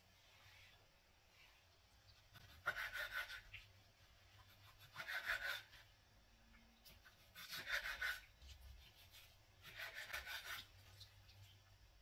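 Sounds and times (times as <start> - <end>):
knife slicing on cutting board: 2.4 - 3.5, 7.2 - 10.7.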